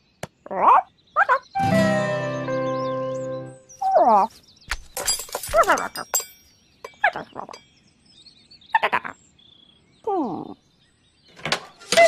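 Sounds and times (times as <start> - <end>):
wire coat hangers clinking: 4.7 - 7.6.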